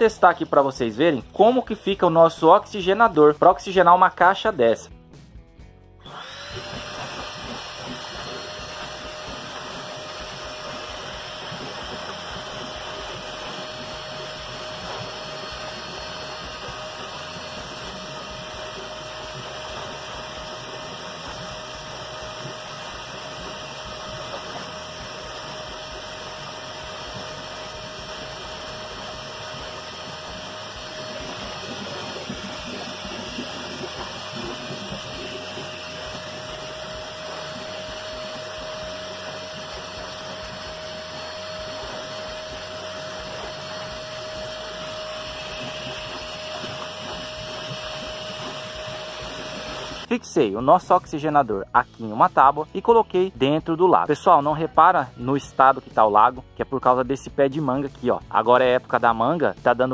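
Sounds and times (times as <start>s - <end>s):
air blower motor whining: 0.0s - 3.0s, 6.0s - 51.0s
water churning: 6.2s - 50.1s.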